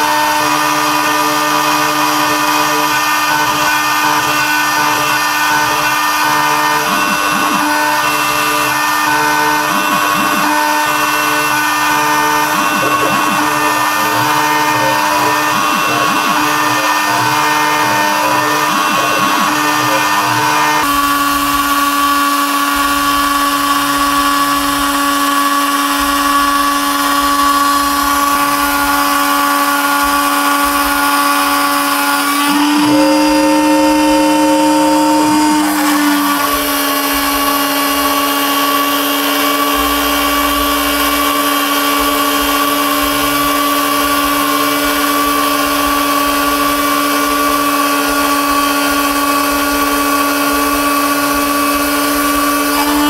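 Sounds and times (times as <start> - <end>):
milling spindle whine: 0.0 - 53.0.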